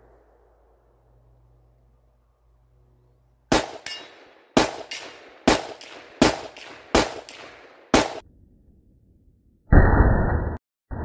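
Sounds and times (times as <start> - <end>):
gunshot echo: 3.5 - 8.2
gunshots: 3.5 - 8.2.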